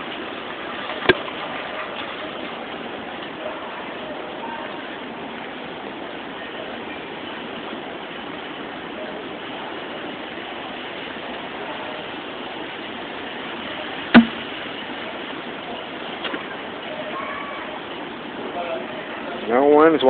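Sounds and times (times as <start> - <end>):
store background hiss: 0.0 - 20.0
sharp knock: 14.2 - 14.5.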